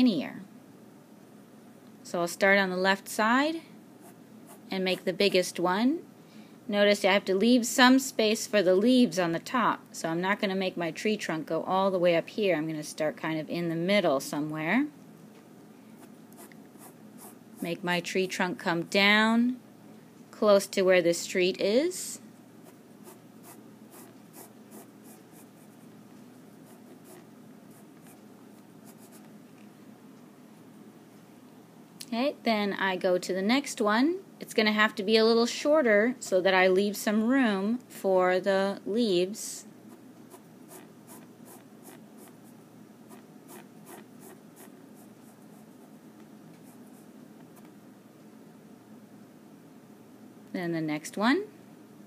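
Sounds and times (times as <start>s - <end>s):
pencil scratching on paper: 16.0s - 17.4s, 22.6s - 25.8s, 26.6s - 28.2s, 28.8s - 29.3s, 40.3s - 42.4s, 43.1s - 46.0s.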